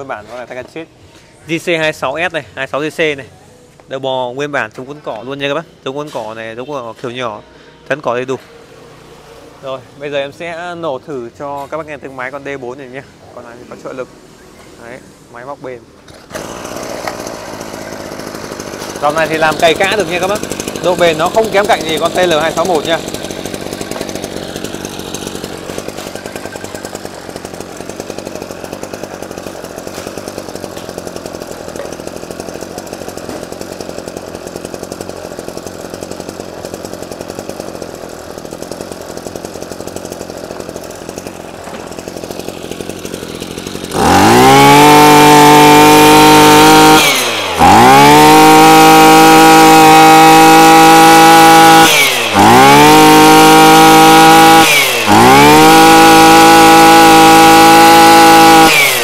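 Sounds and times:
brushcutter engine revving: 16.0 - 59.0.

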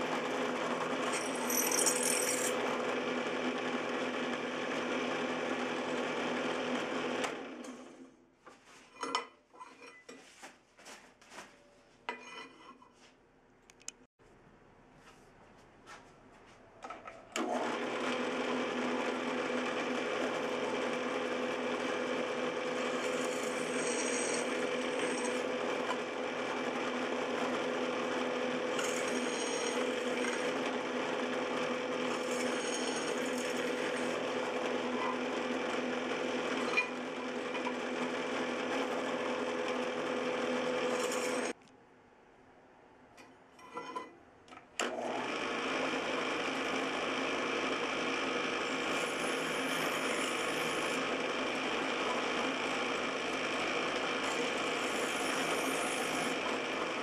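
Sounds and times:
drill press motor humming: 0.0 - 8.1, 17.3 - 41.5, 44.8 - 57.0.

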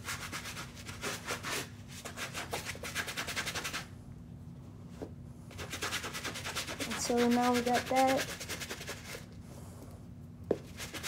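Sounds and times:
brush scrubbing a sneaker: 0.0 - 3.9, 5.5 - 9.3, 10.6 - 11.0.

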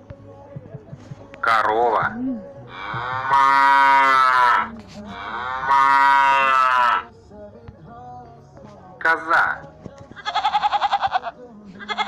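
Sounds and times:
cow mooing: 2.7 - 7.1.

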